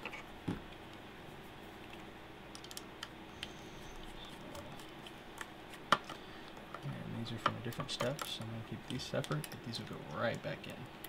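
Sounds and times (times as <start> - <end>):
small clicks and taps of handling: 4.8 - 10.4.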